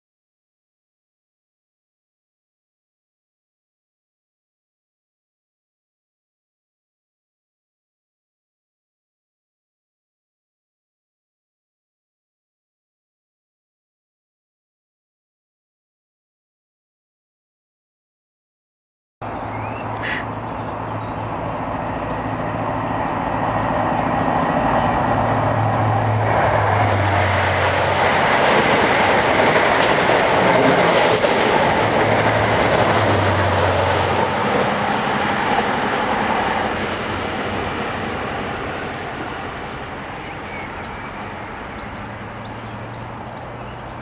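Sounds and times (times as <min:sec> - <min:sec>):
steam train passing: 0:19.2 - 0:44.0
train wheels clattering on rails: 0:21.2 - 0:37.7.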